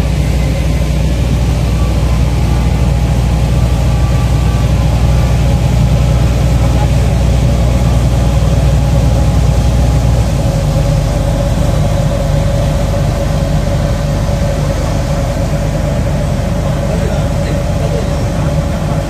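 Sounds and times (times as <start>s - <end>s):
boat engine droning: 0.0s - 19.0s
mid-pitched hum: 0.0s - 19.0s.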